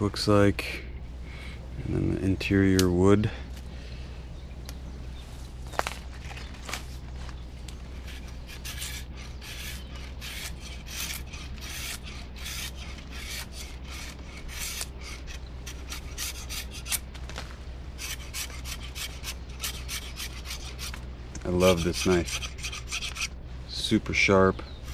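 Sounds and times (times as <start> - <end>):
knife scraping wood: 7.9 - 17.1, 18.0 - 23.4.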